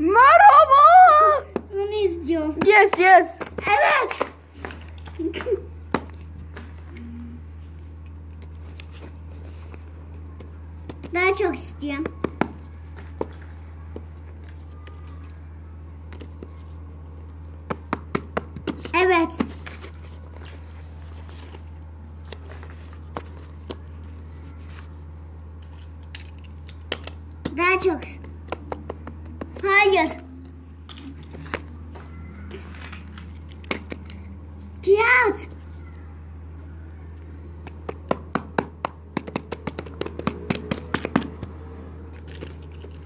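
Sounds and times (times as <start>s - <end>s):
steady low hum: 0.0s - 43.0s
hands tapping objects: 11.9s - 15.4s, 17.6s - 19.8s, 25.6s - 29.8s, 32.8s - 34.3s, 37.6s - 41.6s.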